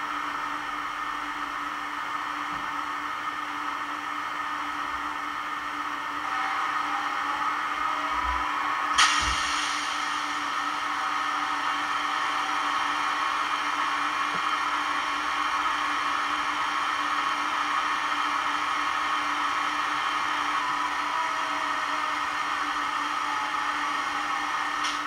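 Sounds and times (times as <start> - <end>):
train equipment whir on small speaker: 0.0 - 25.0.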